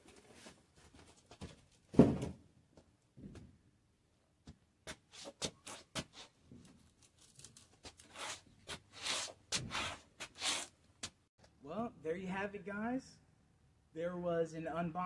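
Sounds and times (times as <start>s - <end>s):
boot soles scraping on concrete: 4.8s - 6.6s, 7.8s - 11.2s.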